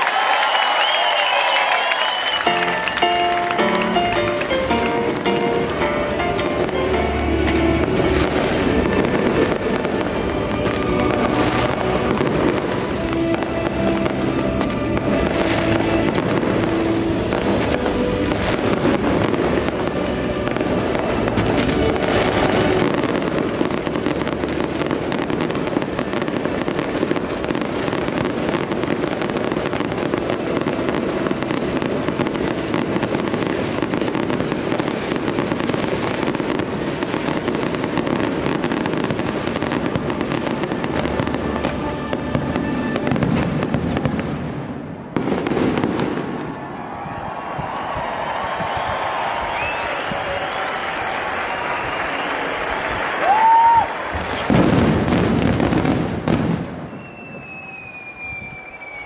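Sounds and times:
fireworks bangs and crackles: 0:00.0 - 0:59.0
music: 0:01.8 - 0:46.0.

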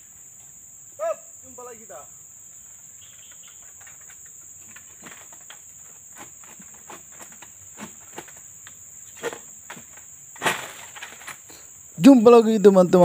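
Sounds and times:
insects shrilling: 0:00.0 - 0:13.0
sickle cracking among palm fronds: 0:03.2 - 0:11.6.

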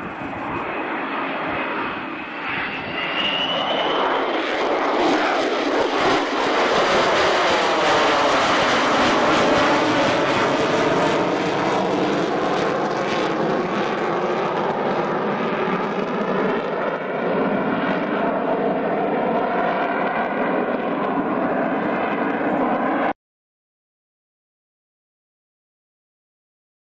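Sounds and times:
jet engines of climbing aircraft: 0:00.0 - 0:23.2.

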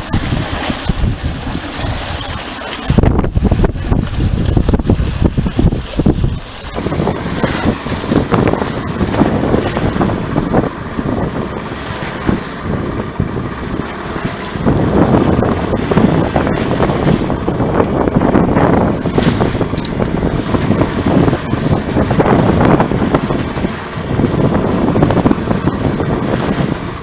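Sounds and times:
choppy sea: 0:00.0 - 0:27.0
wind buffeting microphone: 0:00.0 - 0:27.0.

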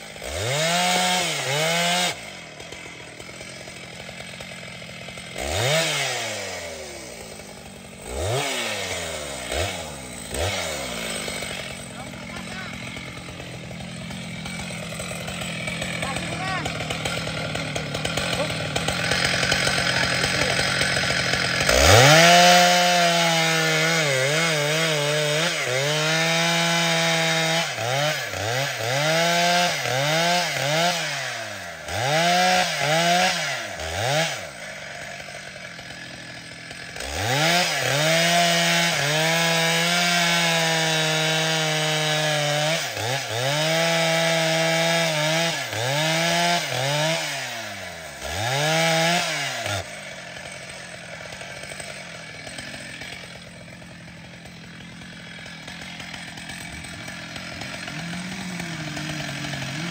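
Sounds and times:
chainsaw cutting wood: 0:00.0 - 0:59.9.

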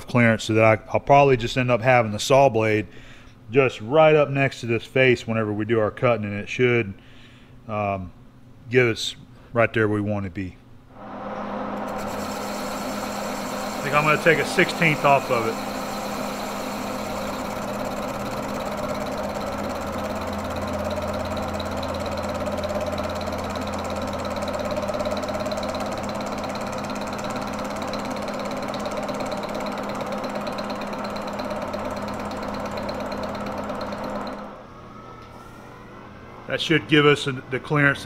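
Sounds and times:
lathe gear-drive hum: 0:11.7 - 0:34.6.

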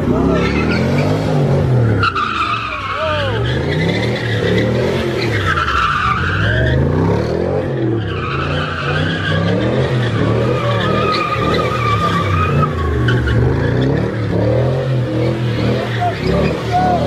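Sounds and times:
car engine revving: 0:00.0 - 0:17.0
tyres squealing: 0:00.1 - 0:07.0, 0:07.8 - 0:17.0.

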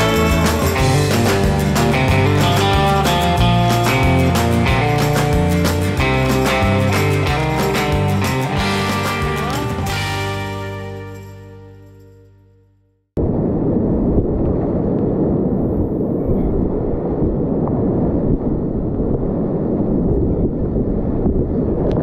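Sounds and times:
music: 0:00.0 - 0:13.2.

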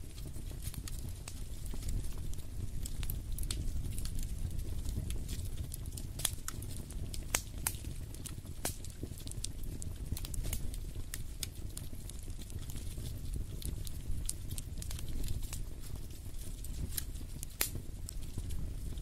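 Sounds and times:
wood fire crackling and popping: 0:00.0 - 0:19.0.

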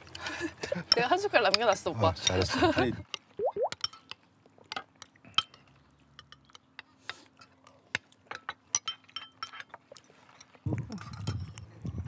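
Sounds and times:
metal spoons clinking against bowls: 0:08.3 - 0:11.8.

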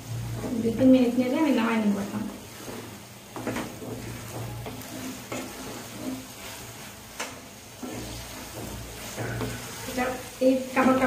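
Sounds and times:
meat sizzling in a pan: 0:00.0 - 0:11.0
spatula scraping a pan: 0:00.0 - 0:11.0
spatula knocking on pan: 0:02.6 - 0:06.2, 0:07.1 - 0:10.2.

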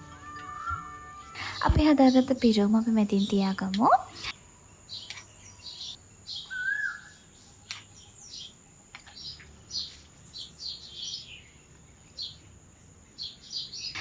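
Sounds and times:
low whistled bird note: 0:00.0 - 0:01.7
birds chirping: 0:00.0 - 0:14.0.

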